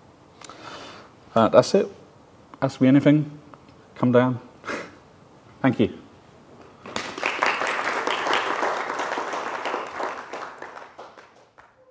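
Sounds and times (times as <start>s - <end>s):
audience applauding: 6.8s - 11.9s.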